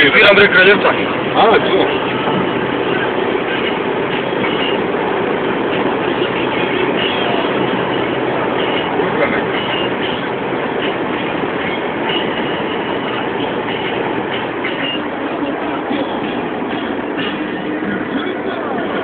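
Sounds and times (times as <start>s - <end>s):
car road and engine noise: 0.0s - 19.0s.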